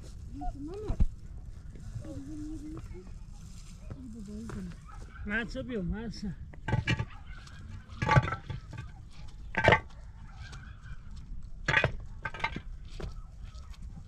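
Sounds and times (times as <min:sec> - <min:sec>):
concrete blocks knocking and scraping: 0:06.5 - 0:10.0, 0:11.5 - 0:13.2.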